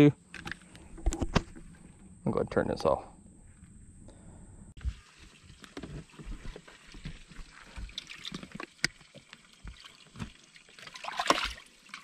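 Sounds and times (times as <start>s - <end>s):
water sloshing: 4.8s - 12.0s.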